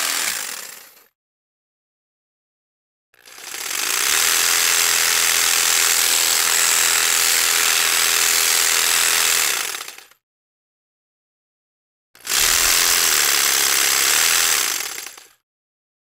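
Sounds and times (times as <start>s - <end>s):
electric jigsaw running: 0.0s - 1.1s, 3.2s - 10.2s, 12.2s - 15.4s.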